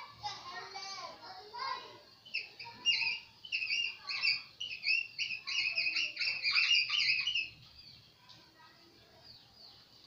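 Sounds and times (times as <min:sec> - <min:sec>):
marker squeaking on whiteboard: 0:02.3 - 0:07.6.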